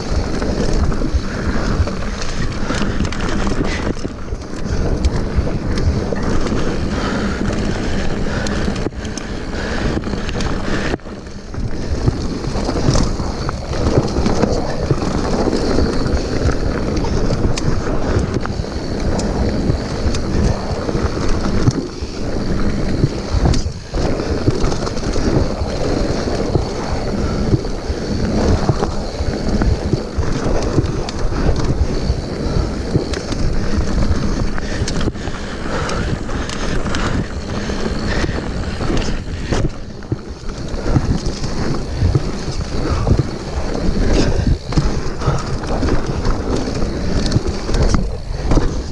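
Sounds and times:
bike rattling and knocking: 0.0 - 48.9
bike tyres rumbling over gravel: 0.0 - 48.9
wind buffeting microphone: 0.0 - 48.9.

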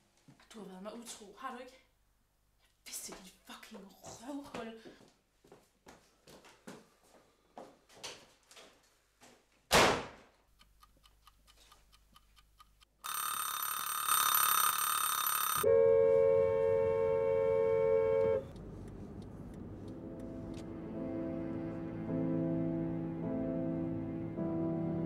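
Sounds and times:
faint regular ticking: 10.5 - 15.6, 18.5 - 20.6
kitchen timer bell ringing: 13.1 - 15.7.

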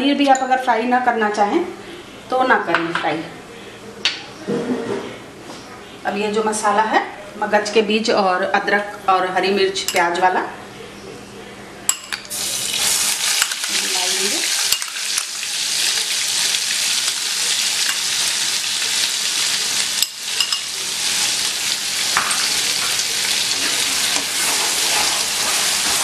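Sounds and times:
paste sizzling in hot oil: 12.3 - 26.0.

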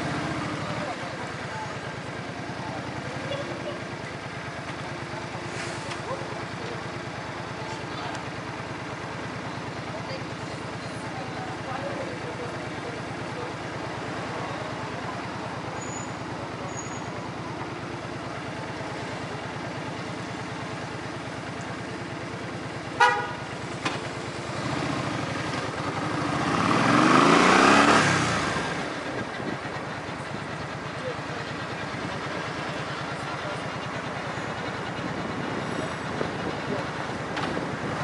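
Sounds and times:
vehicle engine idling: 0.0 - 38.0
short horn toot: 23.0 - 23.4
vehicle passing by: 24.5 - 28.9.

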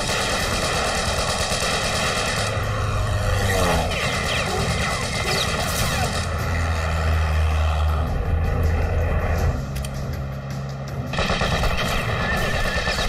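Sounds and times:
propeller plane engine droning: 0.0 - 13.0.

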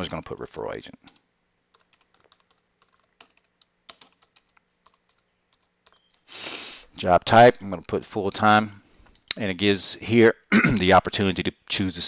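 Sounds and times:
in-breath hiss: 6.3 - 7.0.

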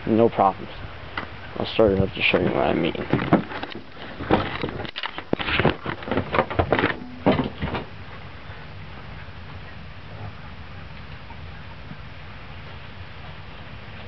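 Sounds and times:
quiet steady background: 0.0 - 14.0
camera knocks and clunks: 3.0 - 7.9.

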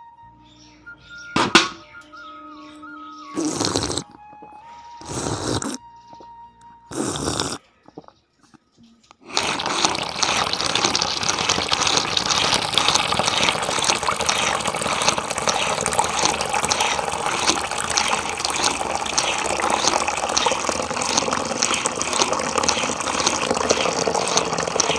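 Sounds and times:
water trickling into basin: 9.2 - 24.9.

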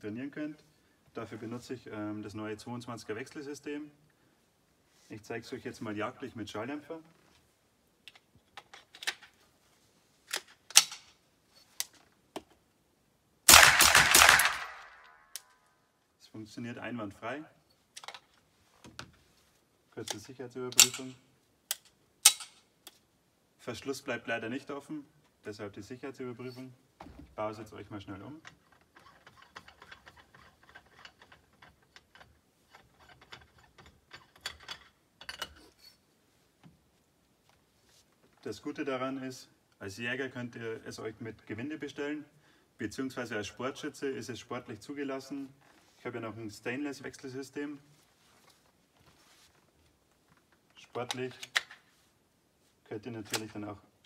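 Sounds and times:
metallic clicks of rifle action: 10.3 - 11.2, 13.5 - 15.6, 20.1 - 23.0, 50.9 - 51.9, 53.2 - 53.6
suppressed rifle shots: 13.5 - 15.1
sharp clicks: 13.5 - 15.6.

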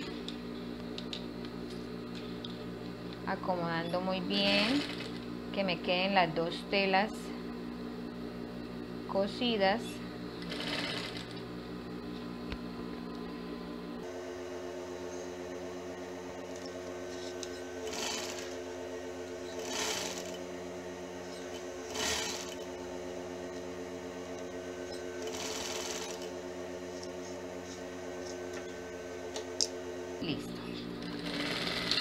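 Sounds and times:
sewing machine motor humming: 2.1 - 7.2, 9.4 - 11.5, 16.3 - 27.1, 30.5 - 32.0
bursts of machine stitching: 4.3 - 5.2, 10.4 - 11.4, 17.8 - 18.6, 19.4 - 20.4, 21.4 - 22.7, 25.2 - 26.3, 31.0 - 32.0.

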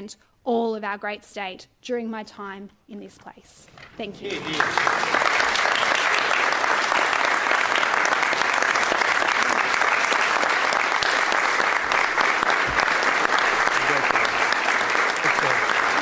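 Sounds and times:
crowd applauding: 4.2 - 16.0.

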